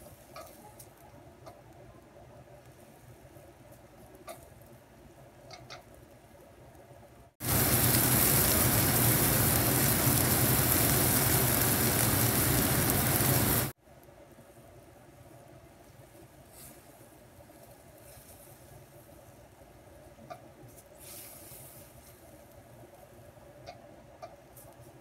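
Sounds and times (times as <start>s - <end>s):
mushrooms sizzling in oil: 7.4s - 13.8s.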